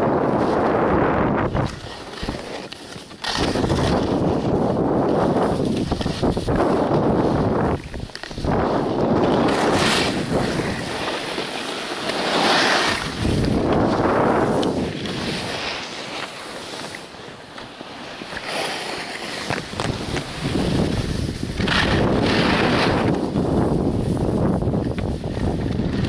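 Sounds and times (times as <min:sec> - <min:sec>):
wind rushing over microphone: 0:00.0 - 0:16.1, 0:18.4 - 0:26.0
skis hissing on snow: 0:09.5 - 0:13.5.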